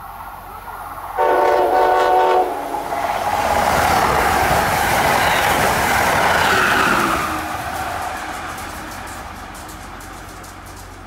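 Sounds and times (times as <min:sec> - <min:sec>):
train wheels rushing on rail: 0:00.0 - 0:11.0
train horn blast: 0:01.2 - 0:03.1.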